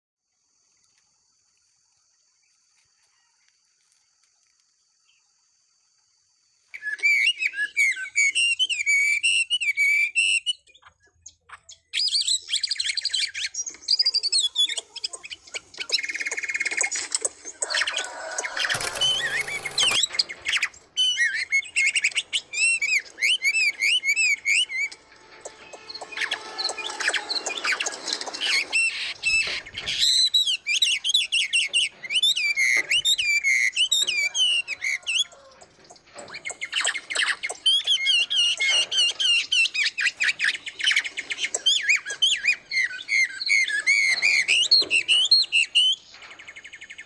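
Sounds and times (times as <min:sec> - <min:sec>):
songbirds singing: 0:00.6 - 0:47.0
short harsh burst: 0:18.7 - 0:20.3.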